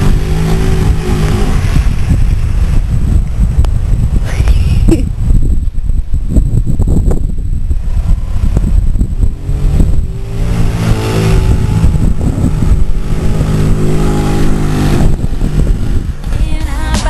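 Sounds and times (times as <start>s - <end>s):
motorcycle engine passing: 0.0s - 3.0s, 8.0s - 16.8s
steady low rumble: 0.0s - 17.0s.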